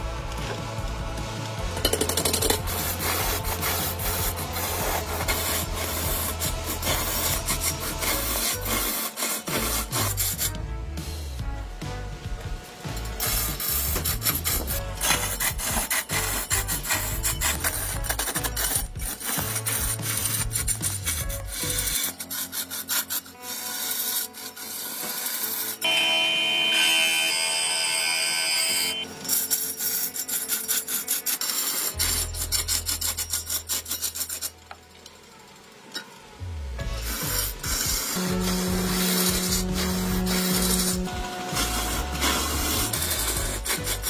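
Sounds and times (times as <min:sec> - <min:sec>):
turning tool rasping wood: 0:00.0 - 0:11.4, 0:12.8 - 0:34.8, 0:36.8 - 0:44.0
high ringing tone: 0:25.8 - 0:29.2.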